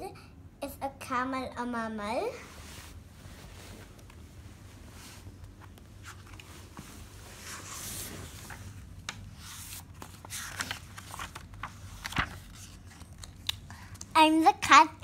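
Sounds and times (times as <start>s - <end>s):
book pages rustling: 4.8s - 14.1s.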